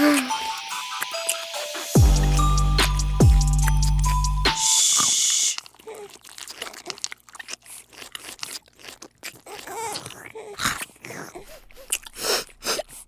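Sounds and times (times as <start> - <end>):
kittens crunching dry kibble: 5.6 - 13.0.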